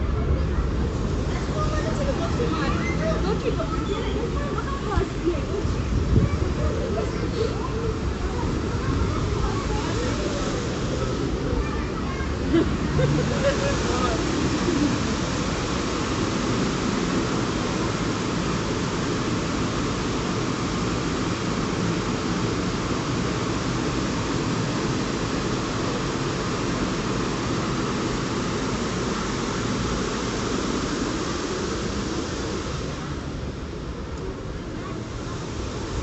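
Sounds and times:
river water rushing: 0.0 - 36.0.

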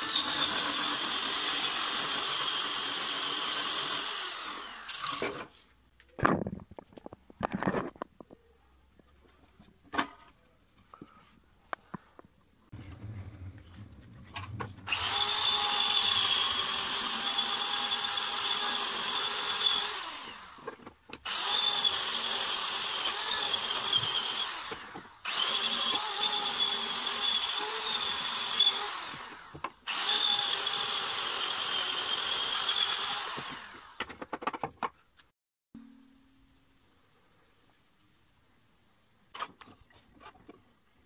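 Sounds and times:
drill motor whine: 14.9 - 20.6, 21.3 - 34.0.

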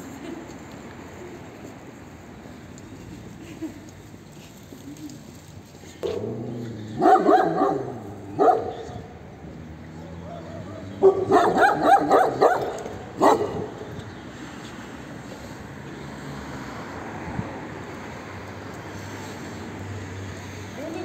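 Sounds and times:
dogs barking: 6.0 - 9.0, 10.4 - 13.8.

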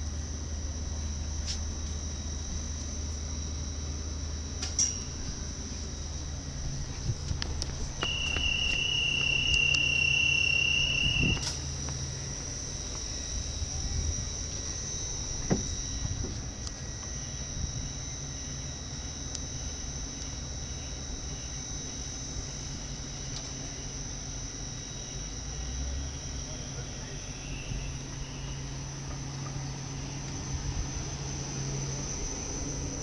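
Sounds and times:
low train hum: 0.0 - 33.0
thin high whine: 0.0 - 33.0
train door warning beep: 1.0 - 6.8, 8.0 - 29.6
door shutting thump: 15.4 - 16.4.

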